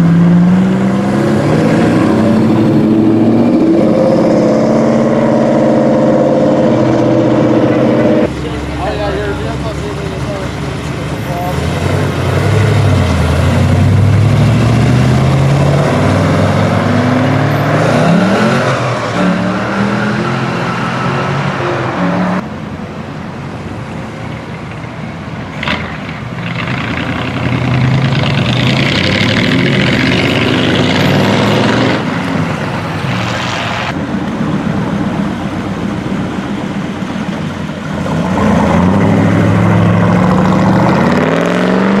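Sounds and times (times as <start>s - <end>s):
car engines rumbling past: 0.0s - 42.0s.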